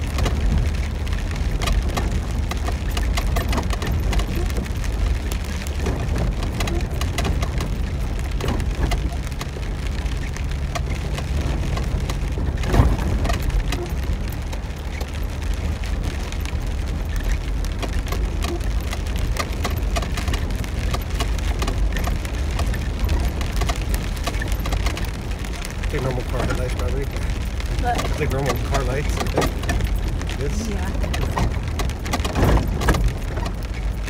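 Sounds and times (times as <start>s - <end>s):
heavy rain on vehicle roof: 0.0s - 34.0s
vehicle rumbling on dirt track: 0.0s - 34.0s.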